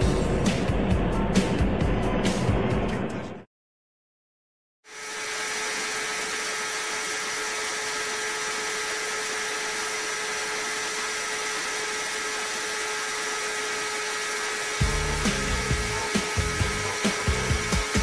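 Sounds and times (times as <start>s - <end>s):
motorcycle engine whine at high revs: 4.8s - 18.0s.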